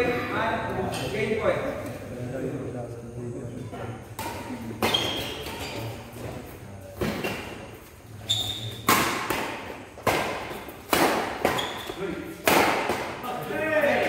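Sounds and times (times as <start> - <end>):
shoes squeaking on court: 4.8 - 9.0, 11.4 - 12.0.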